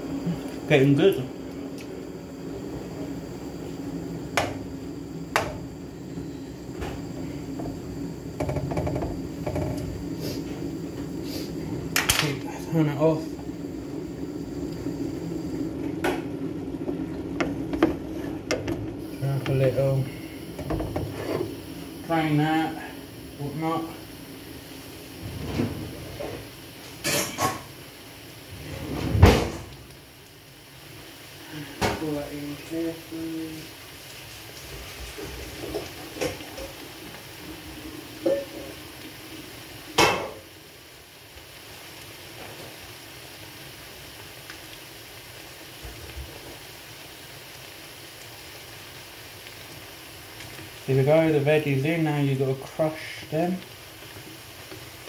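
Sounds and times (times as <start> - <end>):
steady background hum: 0.0 - 34.2
saucepan knocking and clunking: 6.8 - 10.0, 20.6 - 21.5
pans and utensils knocking: 8.4 - 10.0.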